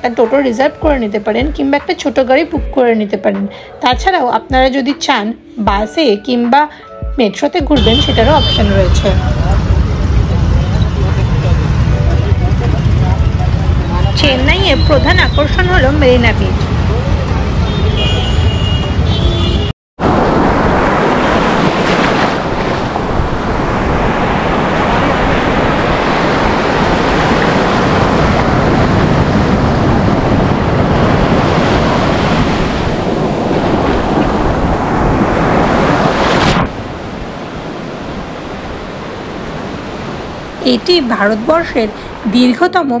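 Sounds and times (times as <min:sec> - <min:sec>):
surf breaking on a sandy beach: 0:20.0 - 0:40.6.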